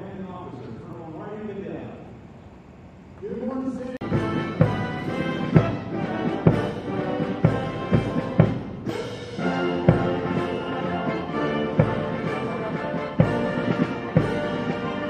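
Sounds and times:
military brass band playing: 4.0s - 15.0s.

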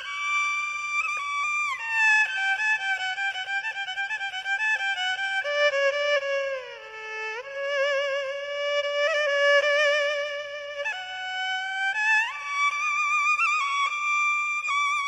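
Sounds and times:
bowed string instrument melody: 0.0s - 15.0s.

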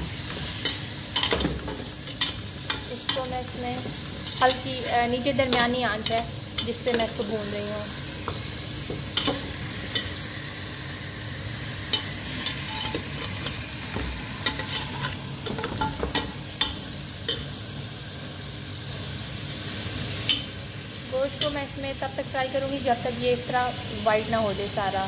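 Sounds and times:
meat sizzling in a pot: 0.0s - 25.0s
metal spatula scraping a pot: 11.9s - 16.2s.

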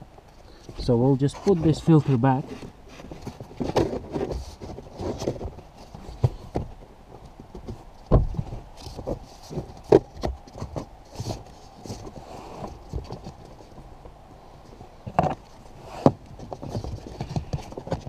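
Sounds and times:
rustling: 0.0s - 18.0s.

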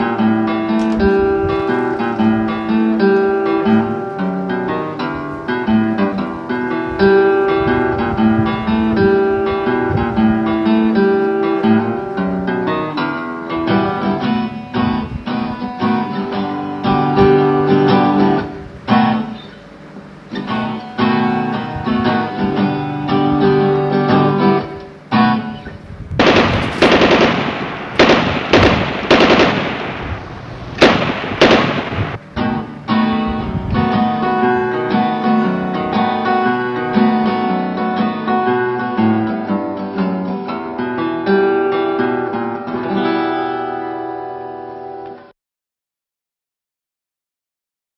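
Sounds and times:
acoustic guitar music: 0.0s - 45.3s
rapid gunfire: 26.2s - 32.2s.

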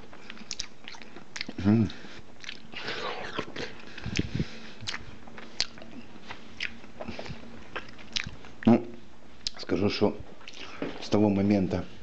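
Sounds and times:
person chewing watermelon: 0.0s - 8.8s, 9.4s - 9.6s, 10.4s - 10.8s.

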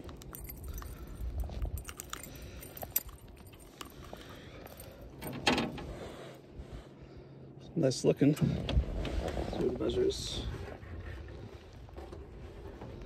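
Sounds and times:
metal fishing lure jangling: 0.0s - 4.0s.

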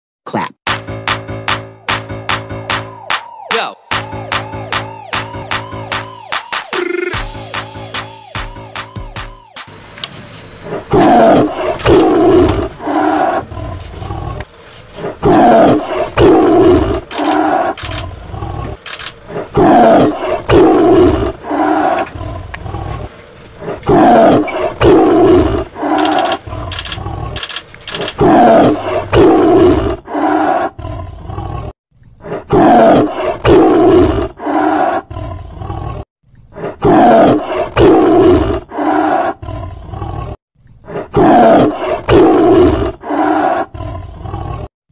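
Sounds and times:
lion roaring and grunting: 10.6s - 44.7s.

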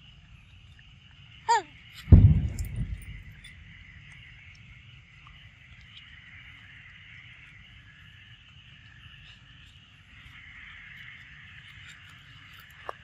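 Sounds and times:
low rumble: 2.1s - 5.8s.

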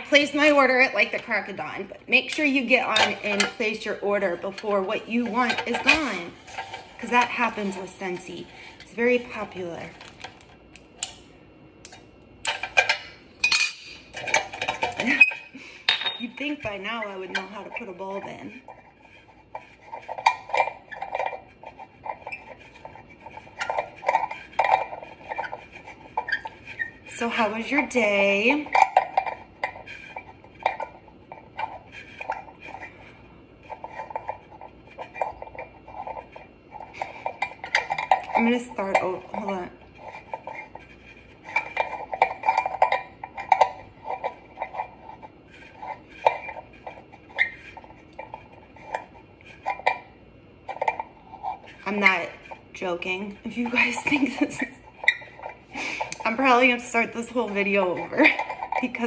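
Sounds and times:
ceramic clinks and scrapes: 2.3s - 3.8s, 4.4s - 10.2s, 12.5s - 27.5s, 28.1s - 59.0s.

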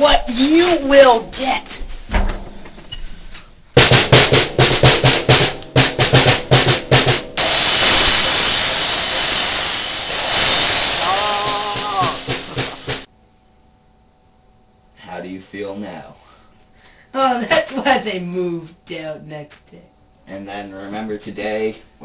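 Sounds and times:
drum kit hits and roll: 3.7s - 13.1s.

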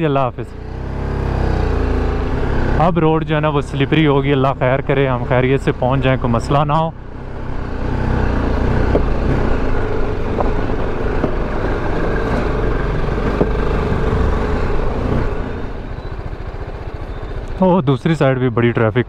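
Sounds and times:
motorcycle engine running: 0.0s - 19.0s
road and wind noise: 0.0s - 19.0s
sharp knocks: 8.8s - 9.4s, 10.2s - 11.7s, 13.2s - 13.7s.

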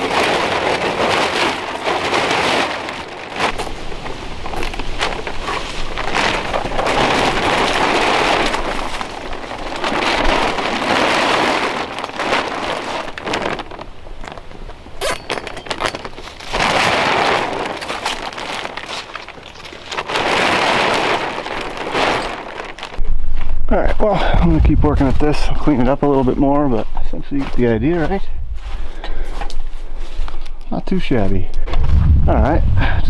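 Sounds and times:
plastic tarp rustling and crinkling: 0.0s - 33.0s.

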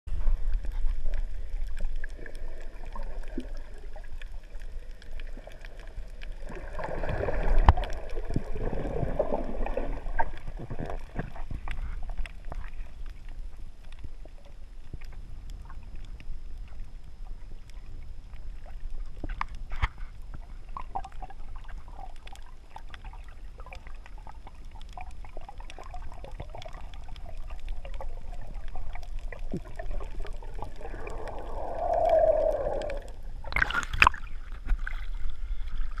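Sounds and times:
muffled underwater rumble: 0.1s - 36.0s
underwater bubbling: 0.1s - 36.0s
faint clicks: 22.1s - 34.9s.

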